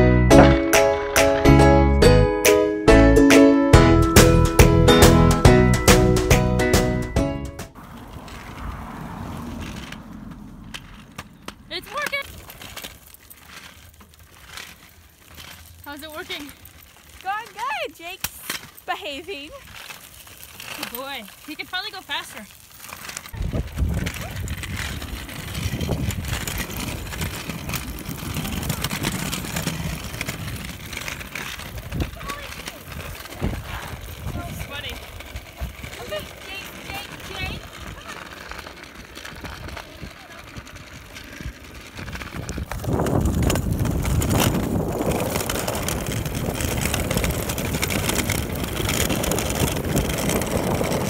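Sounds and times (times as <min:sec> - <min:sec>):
low road rumble: 0:00.0 - 0:51.0
bicycle rattles and knocks: 0:02.9 - 0:51.0
wind noise on microphone: 0:23.3 - 0:36.0, 0:39.1 - 0:51.0.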